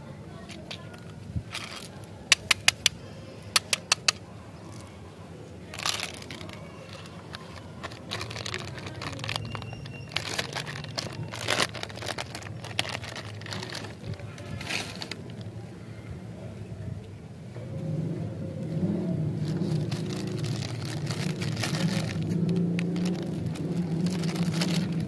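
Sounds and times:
plastic wrapper crinkling: 0:00.5 - 0:02.8, 0:05.7 - 0:15.5, 0:19.4 - 0:25.0
candy balls clicking: 0:00.6 - 0:04.3, 0:05.7 - 0:15.5, 0:19.5 - 0:25.0.

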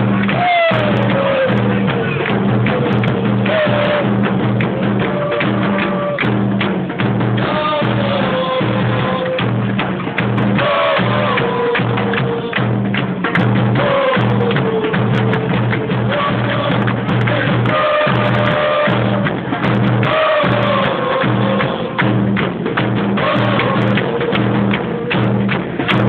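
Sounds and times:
crowd chanting: 0:00.0 - 0:06.6, 0:07.4 - 0:25.9
drums beating a driving rhythm: 0:00.0 - 0:26.0.

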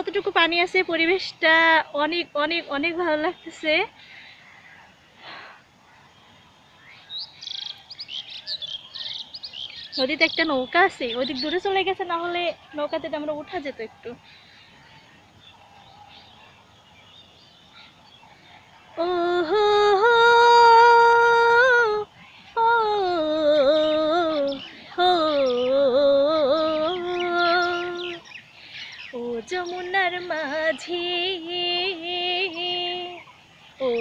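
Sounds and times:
woman singing unaccompanied: 0:00.0 - 0:03.9, 0:09.6 - 0:14.2, 0:18.9 - 0:34.0.

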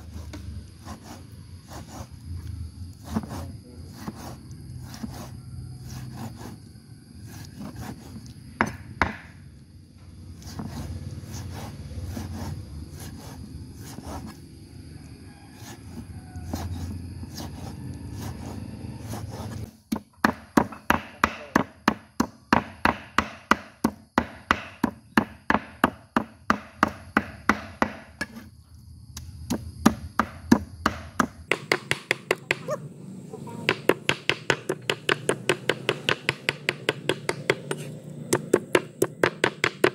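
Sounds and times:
cleaver chopping on wooden board: 0:07.8 - 0:09.3, 0:19.9 - 0:28.4, 0:29.5 - 0:32.8, 0:33.6 - 0:39.9.

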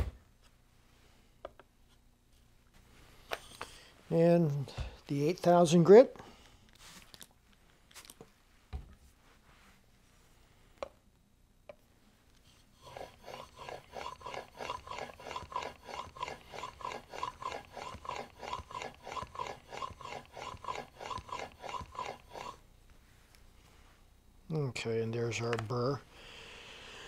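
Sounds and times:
blade rasping on whetstone: 0:12.7 - 0:22.6.

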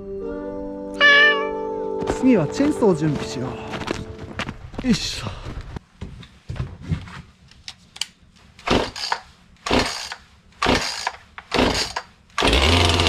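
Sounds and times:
chainsaw starter cord pulls: 0:08.7 - 0:13.0.

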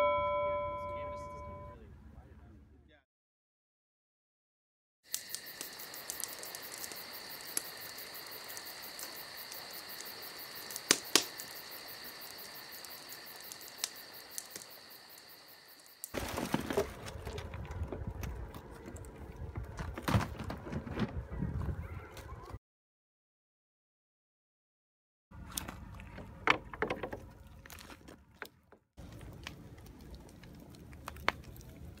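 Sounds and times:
insects chirring: 0:05.1 - 0:16.6
wind rumbling on microphone: 0:17.0 - 0:22.6.

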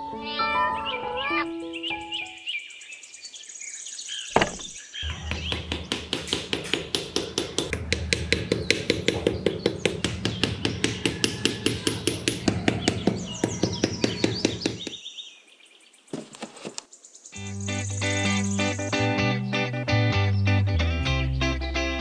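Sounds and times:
bird chirps: 0:00.5 - 0:16.2, 0:16.9 - 0:19.6
rapid knocking: 0:04.4 - 0:15.0.

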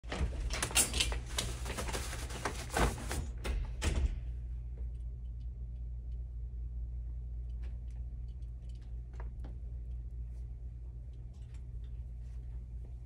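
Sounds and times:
steady low hum: 0:00.0 - 0:13.0
clothes hangers clattering on rack: 0:00.1 - 0:03.6.

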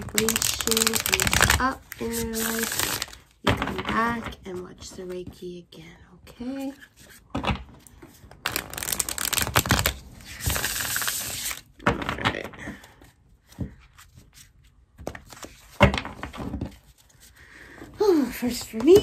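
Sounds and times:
cards riffling: 0:00.0 - 0:03.2, 0:08.4 - 0:11.7
cards clicking: 0:08.5 - 0:11.6.

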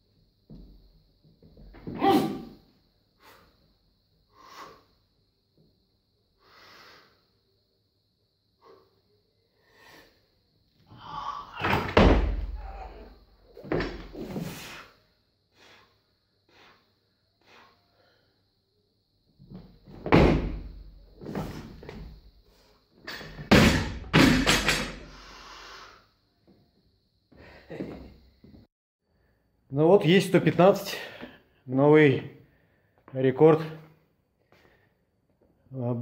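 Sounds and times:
barbell heavy thuds: 0:23.3 - 0:25.0.

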